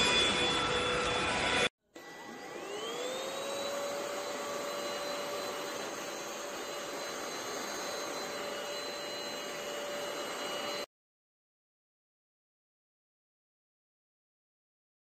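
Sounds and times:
vacuum motor whine: 0.0s - 10.9s
vacuum head pushed over rug: 2.0s - 10.9s.

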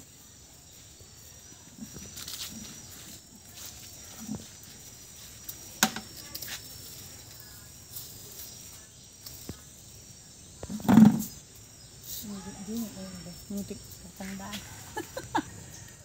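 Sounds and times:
insects chirring: 0.0s - 16.0s
leaves rustling: 0.8s - 10.1s
thump: 10.7s - 11.3s.

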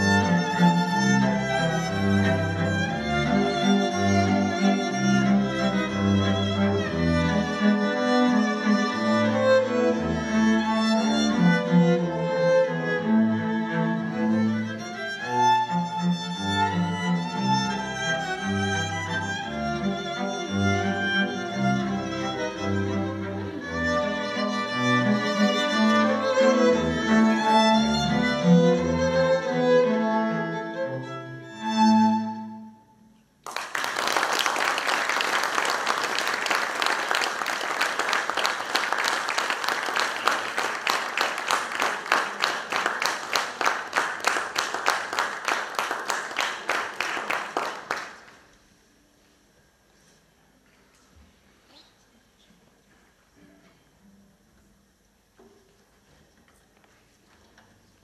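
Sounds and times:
string quartet playing: 0.0s - 32.8s
audience applause: 33.4s - 48.4s.

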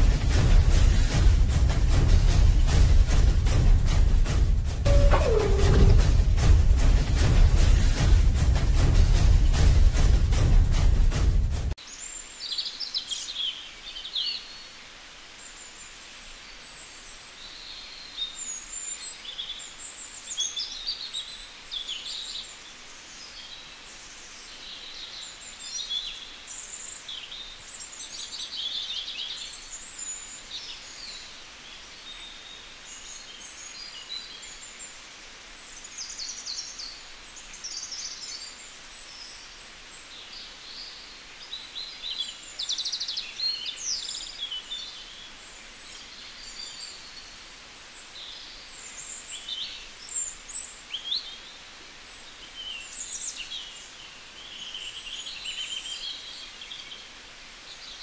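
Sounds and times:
songbirds chirping and trilling: 0.0s - 10.6s, 11.8s - 58.0s
faint outdoor hiss: 11.7s - 58.0s.

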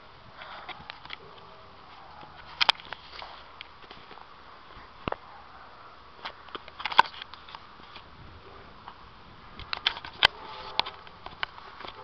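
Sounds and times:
faint outdoor hiss: 0.0s - 12.0s
phone handling clicks and rubbing: 2.2s - 4.2s, 6.2s - 8.0s, 9.6s - 12.0s.

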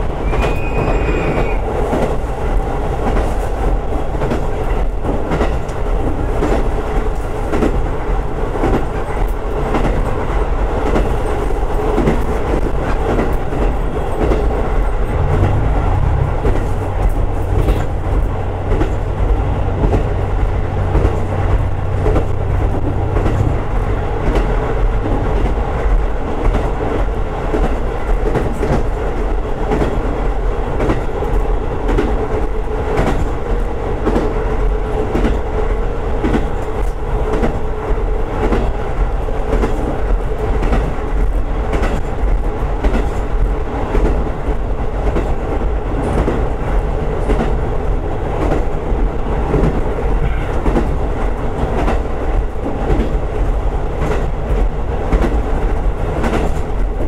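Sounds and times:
train running noise: 0.0s - 57.0s.

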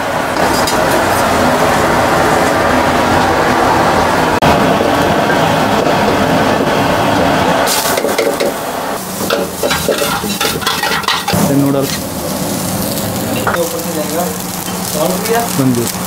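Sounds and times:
gas burner rushing: 0.0s - 16.0s
vegetables sizzling in oil: 7.7s - 16.0s
metal ladle scraping wok: 9.1s - 13.2s.

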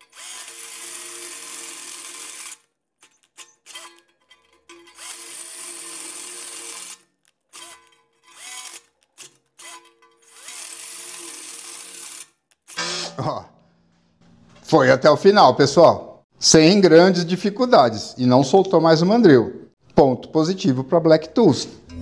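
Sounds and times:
cordless drill drilling: 0.0s - 4.0s, 4.8s - 13.2s.

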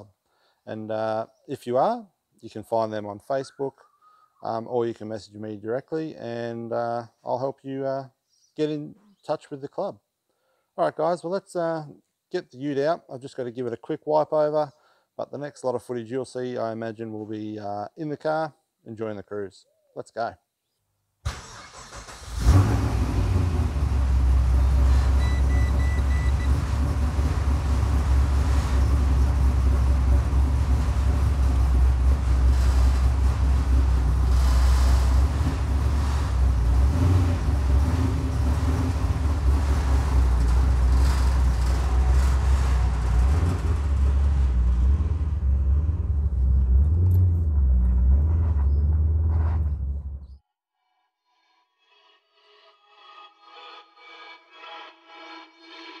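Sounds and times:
engine idling low rumble: 23.0s - 50.4s.

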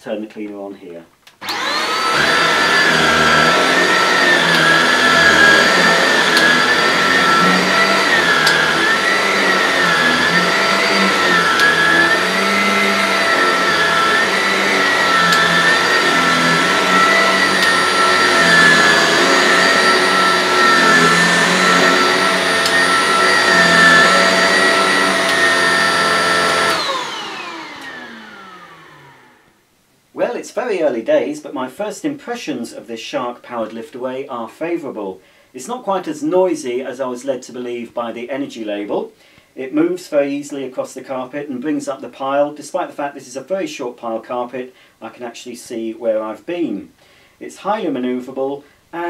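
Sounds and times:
vacuum cleaner motor whine: 1.4s - 29.5s.

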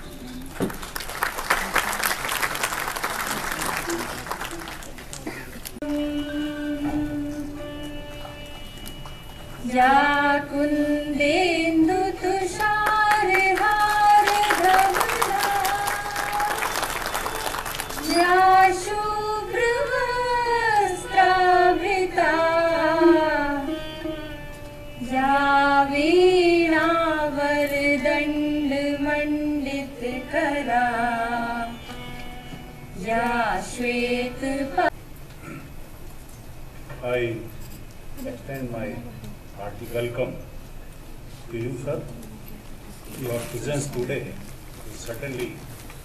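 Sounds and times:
applause: 0.4s - 5.8s, 12.6s - 18.2s
person singing ornamented melody: 5.8s - 7.9s.

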